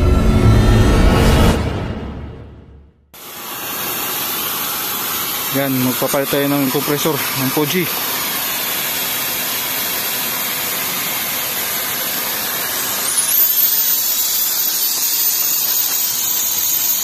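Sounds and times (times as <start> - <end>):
refrigerant hissing from hose: 3.2 - 17.0
thin high whistle: 12.9 - 17.0.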